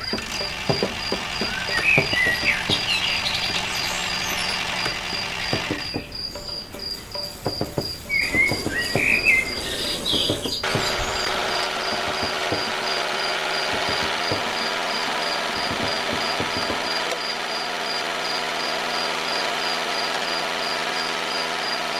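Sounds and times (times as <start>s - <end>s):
bird chirps: 0.0s - 11.5s
crickets chirping: 0.0s - 21.8s
steady motor hum: 0.0s - 21.9s.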